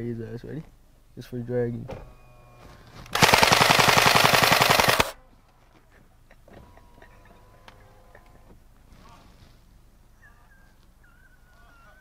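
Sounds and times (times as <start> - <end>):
toy blaster firing automatic burst: 3.2 - 5.2.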